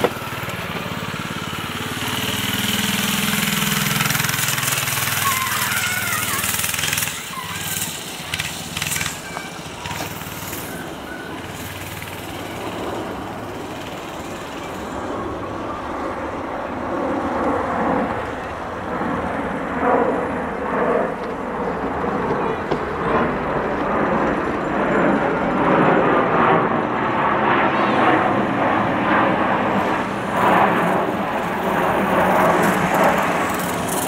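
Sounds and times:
minibike engine revving: 0.0s - 15.6s, 29.8s - 34.0s.

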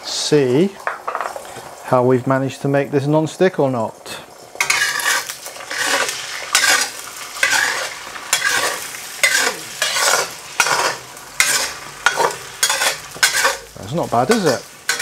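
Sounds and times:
eggs sizzling in wok: 0.0s - 15.0s
metal spatula scraping wok: 4.6s - 15.0s.

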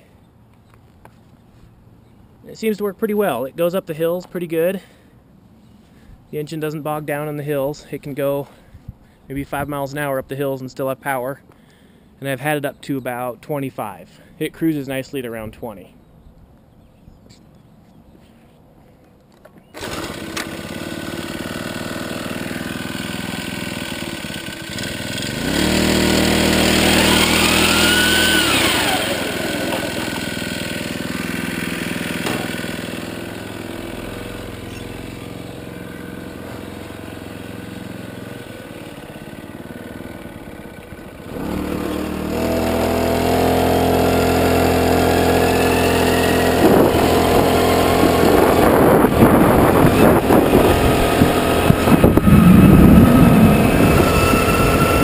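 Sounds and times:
small engine revving: 19.7s - 55.0s
transmission gear whine: 19.7s - 55.0s.

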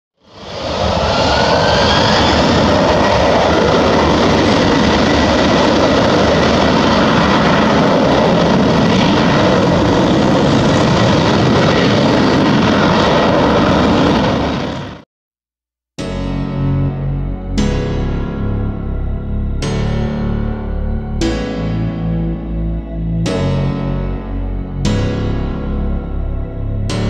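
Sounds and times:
jet engines running: 0.2s - 15.0s.

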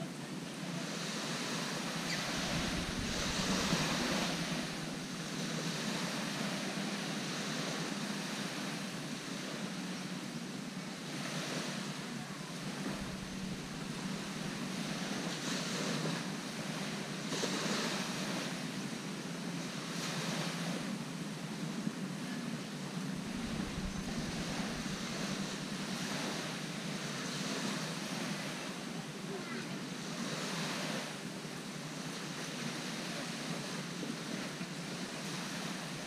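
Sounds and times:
small waves washing onto sand: 0.0s - 36.0s
wind buffeting microphone: 2.0s - 6.8s, 12.6s - 16.5s, 22.8s - 28.3s
faint low hum: 21.6s - 27.8s.

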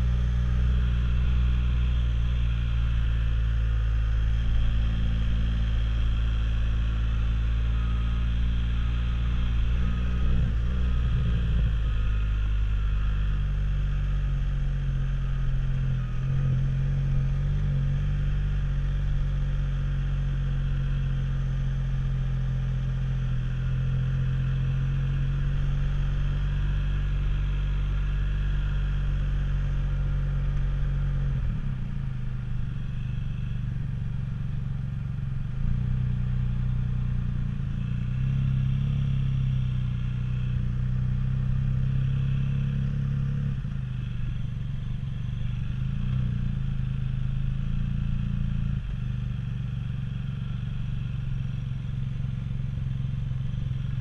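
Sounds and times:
motorcycle engine at low revs: 0.0s - 54.0s.

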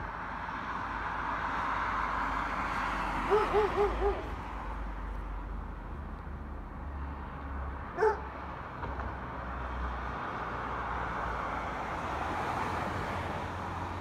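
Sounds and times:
truck engine and tyre noise: 0.0s - 14.0s
dog barking: 3.3s - 4.3s, 8.0s - 8.3s.

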